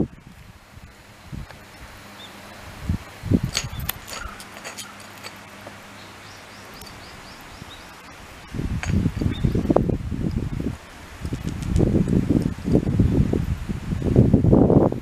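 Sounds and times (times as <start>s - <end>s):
dog claws scraping asphalt: 3.3s - 12.6s
high bird chirps: 5.9s - 8.1s, 9.2s - 9.6s.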